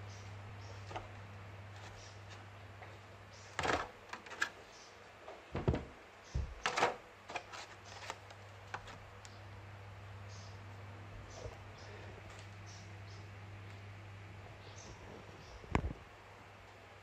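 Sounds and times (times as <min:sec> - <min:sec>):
steady low hum: 0:00.0 - 0:17.0
plastic rustling scrapes: 0:06.6 - 0:09.0.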